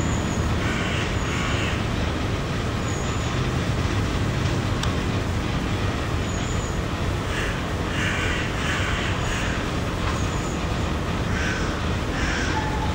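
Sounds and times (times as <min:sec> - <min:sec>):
city traffic rumble: 0:00.0 - 0:12.9
crow cawing: 0:00.6 - 0:01.8, 0:07.3 - 0:09.6, 0:11.3 - 0:12.9.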